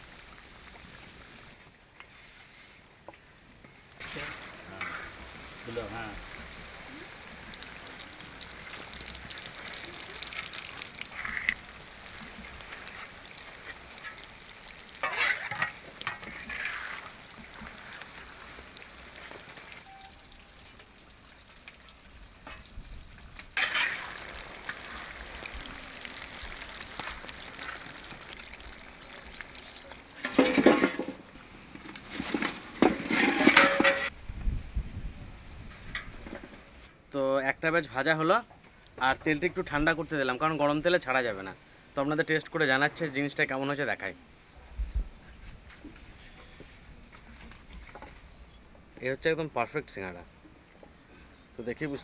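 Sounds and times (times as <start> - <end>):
deep-frying sizzle: 0.0 - 1.6, 3.9 - 34.2
ladle scraping and clanking pan: 15.0 - 18.0, 23.6 - 24.8, 30.2 - 31.2, 32.0 - 34.1.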